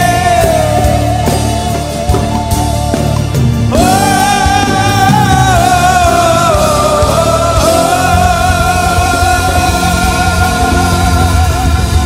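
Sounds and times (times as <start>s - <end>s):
band playing praise song: 0.0s - 12.0s.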